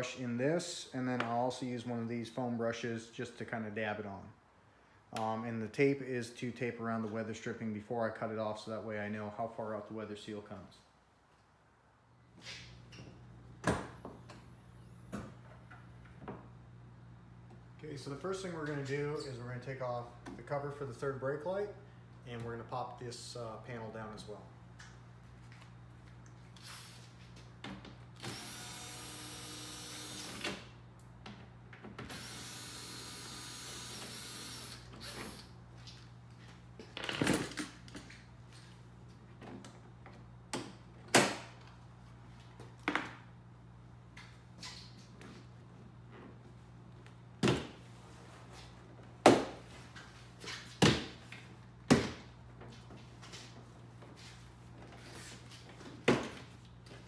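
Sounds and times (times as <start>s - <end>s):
cordless drill running: 28.2s - 30.5s, 32.1s - 35.5s.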